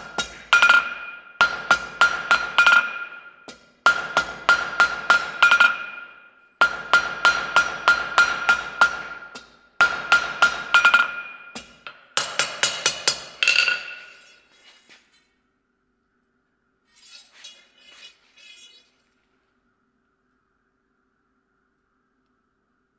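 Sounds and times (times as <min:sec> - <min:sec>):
hammer striking chisel on steel: 0:00.0 - 0:14.5.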